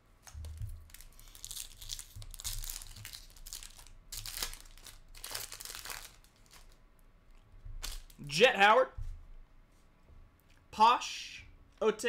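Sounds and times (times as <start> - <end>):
foil wrapper tearing and crinkling: 0.4 - 6.8.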